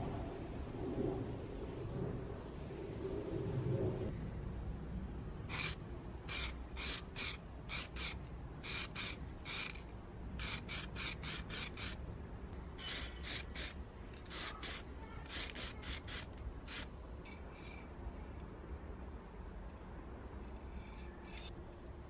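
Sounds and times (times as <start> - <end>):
spray-paint can hissing bursts: 5.5 - 12.0, 12.9 - 16.9.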